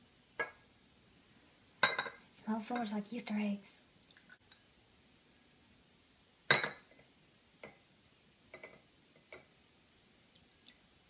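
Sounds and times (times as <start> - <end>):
glasses clinking: 0.4 - 0.6, 1.8 - 2.2, 6.5 - 7.0
glass knocking: 6.5 - 7.0.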